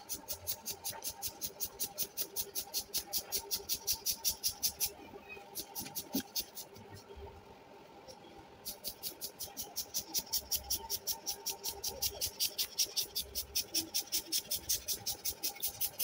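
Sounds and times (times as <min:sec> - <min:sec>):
air pump hissing strokes: 0:08.7 - 0:16.0.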